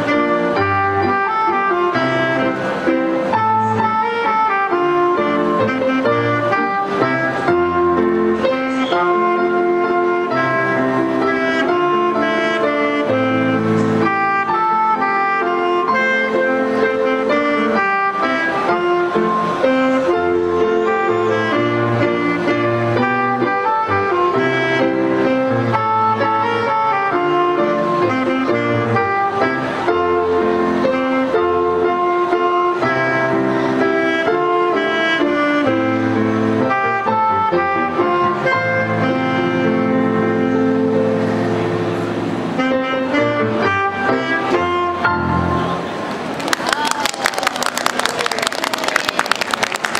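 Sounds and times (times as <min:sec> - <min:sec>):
saxophone melody: 0:00.0 - 0:46.1
bass and chord accompaniment: 0:00.0 - 0:46.3.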